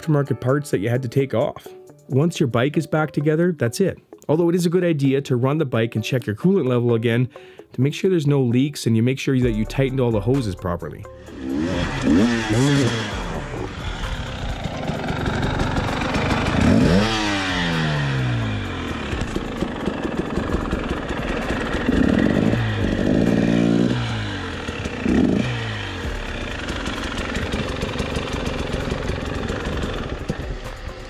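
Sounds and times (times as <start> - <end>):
two-stroke engine revving: 11.1 - 31.0.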